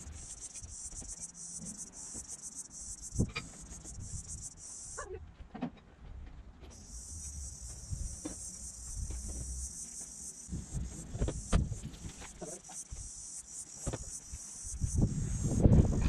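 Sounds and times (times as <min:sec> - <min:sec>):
insects chorus: 0:00.0 - 0:05.1, 0:06.7 - 0:16.0
wind on microphone: 0:14.7 - 0:16.0.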